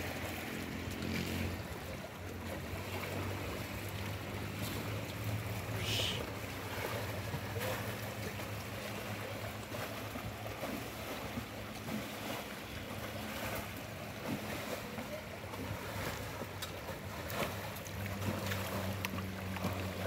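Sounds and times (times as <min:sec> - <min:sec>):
river water rushing: 0:00.0 - 0:20.0
small water splashes: 0:00.0 - 0:20.0.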